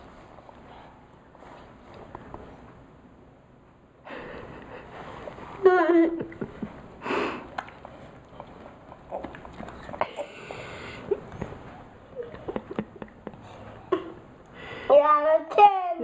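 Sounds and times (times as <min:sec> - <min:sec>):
breathy sniff: 0:07.0 - 0:07.5, 0:10.0 - 0:11.2.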